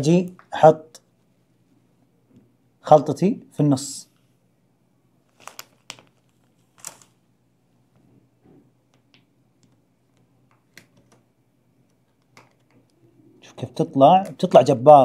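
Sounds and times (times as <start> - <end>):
plastic piping bag crinkling: 5.2 - 7.3.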